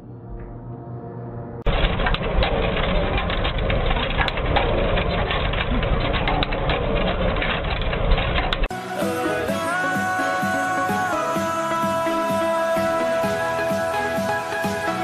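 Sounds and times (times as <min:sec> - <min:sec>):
clatter and crunching: 0:01.6 - 0:08.7
construction machinery engine running: 0:01.6 - 0:15.0.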